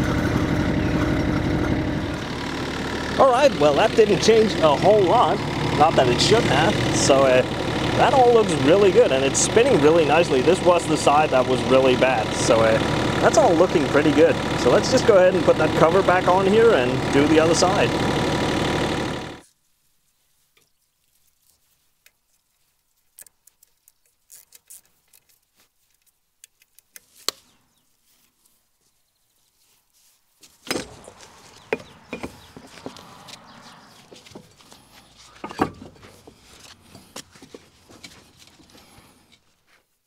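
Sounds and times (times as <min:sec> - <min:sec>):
excavator engine running: 0:00.0 - 0:19.4, 0:30.7 - 0:39.4
knocks and clunks of rubber track: 0:00.0 - 0:19.4, 0:30.4 - 0:39.5.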